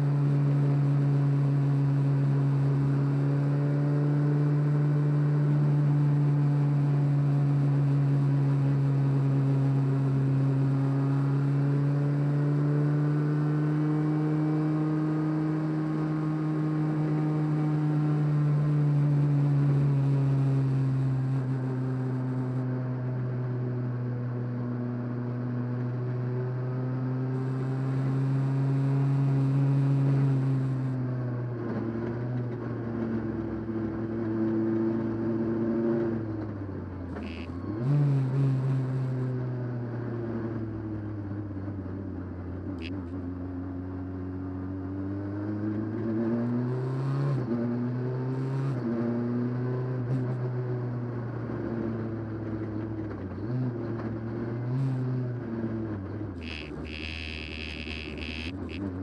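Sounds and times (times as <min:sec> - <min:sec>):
rally car engine under load: 0:24.4 - 0:59.0.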